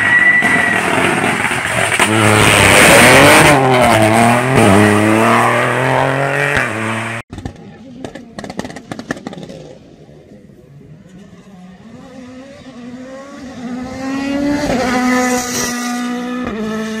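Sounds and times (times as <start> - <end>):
rally car engine accelerating: 0.0 - 7.2.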